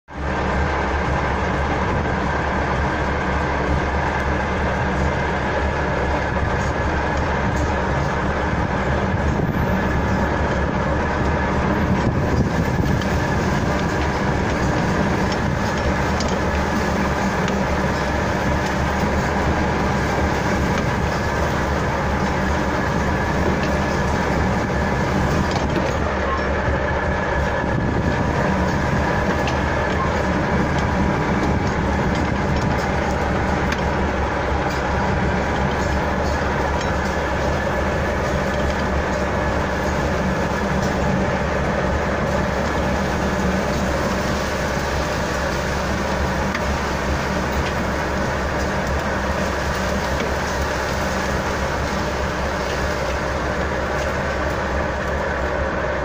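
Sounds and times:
drivetrain whine: 0.0 - 56.0
engine running under load: 0.0 - 56.0.

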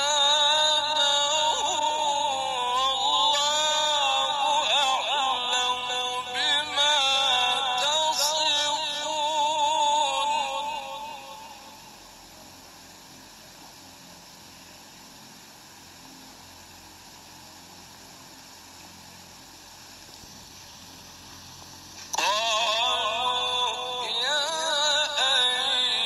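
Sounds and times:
man chanting recitation: 0.0 - 12.0, 22.1 - 26.0
faint background hiss: 0.0 - 26.0.

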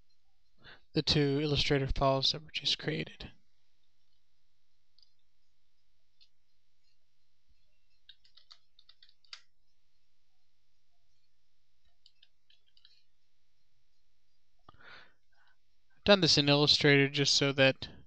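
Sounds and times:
low steady hum: 0.0 - 18.0
mouse and keyboard clicking: 7.9 - 9.5, 11.8 - 13.1.

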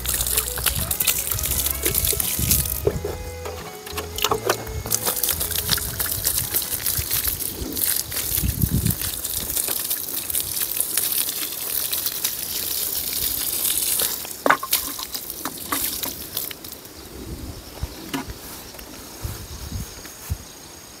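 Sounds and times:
insect trill: 0.0 - 10.8
water showering onto soil: 0.0 - 17.1.

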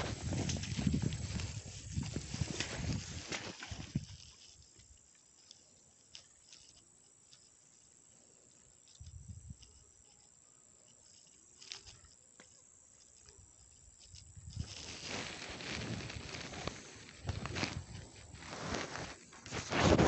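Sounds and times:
footsteps through tall grass: 0.0 - 4.7, 14.3 - 20.0.

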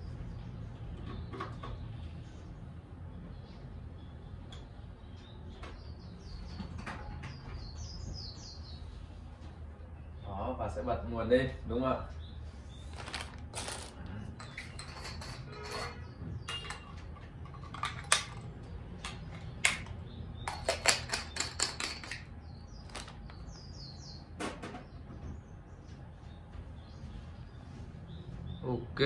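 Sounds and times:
clicks and knocks of small parts: 13.0 - 23.5.

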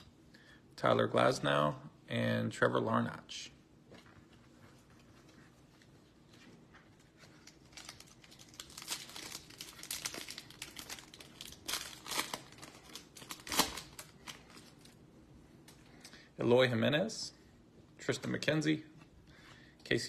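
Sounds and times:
plastic wrapper crinkling: 6.8 - 15.0
plastic wrapper tearing: 7.2 - 15.0.

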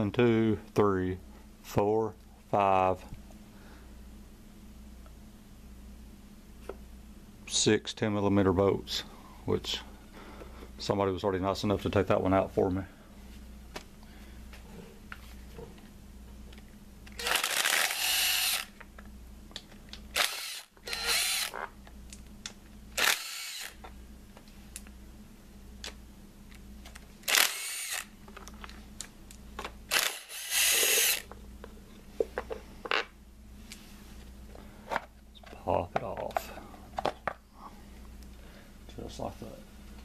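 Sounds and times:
power driver motor whine: 17.1 - 18.7, 20.1 - 21.6, 23.0 - 23.8, 27.3 - 28.1, 29.9 - 31.3.

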